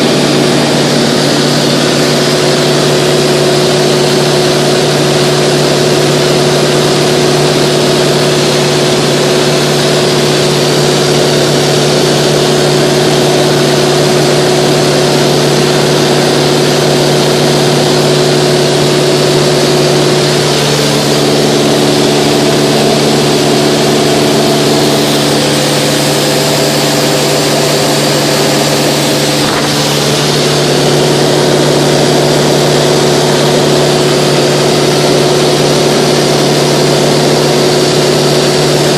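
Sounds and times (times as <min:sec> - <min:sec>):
aircraft engine and propeller drone: 0:11.4 - 0:36.1
extra tones: 0:20.0 - 0:33.1.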